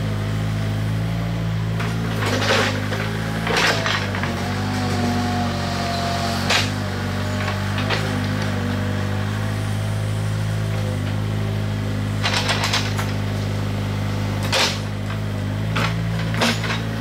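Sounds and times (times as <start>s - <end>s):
diesel engine running: 0.0s - 17.0s
excavator bucket clanking on stones: 1.8s - 5.0s, 6.4s - 8.6s, 12.2s - 13.4s, 14.4s - 17.0s
rattle of clicks: 12.2s - 13.2s.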